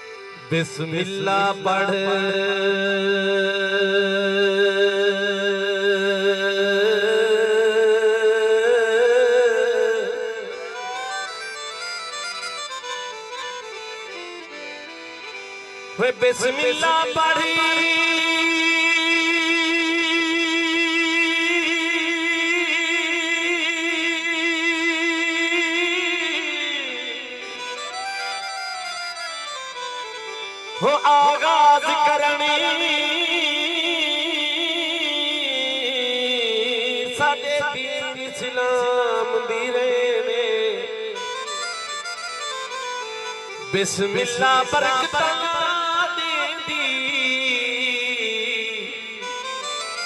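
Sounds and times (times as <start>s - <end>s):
man singing long note with vibrato: 0.0s - 12.8s, 15.7s - 50.0s
man singing long note: 0.5s - 11.4s.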